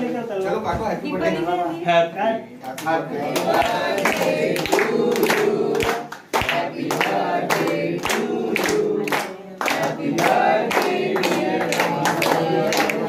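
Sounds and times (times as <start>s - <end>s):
men singing together: 3.0s - 13.0s
hands clapping in time: 3.6s - 13.0s.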